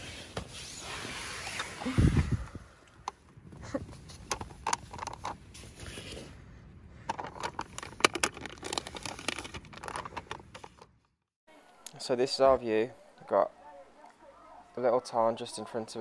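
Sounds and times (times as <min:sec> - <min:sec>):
plastic crinkling and clicking: 0:07.1 - 0:10.9.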